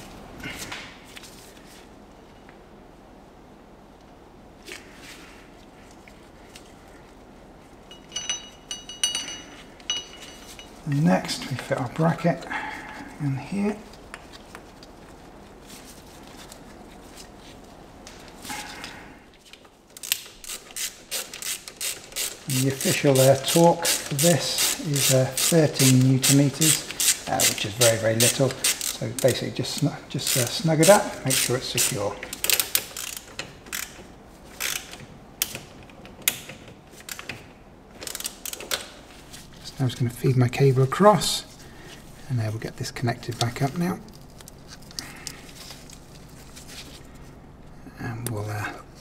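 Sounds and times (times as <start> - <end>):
low steady hum: 0.0 - 49.0
ratchet clicking: 20.0 - 29.4, 30.2 - 34.0, 34.6 - 35.0, 38.0 - 38.8.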